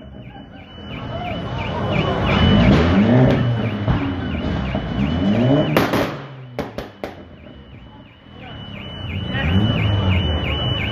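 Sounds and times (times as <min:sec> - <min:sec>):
warbling high tone: 0:00.0 - 0:06.6
car engine revving: 0:00.8 - 0:10.9.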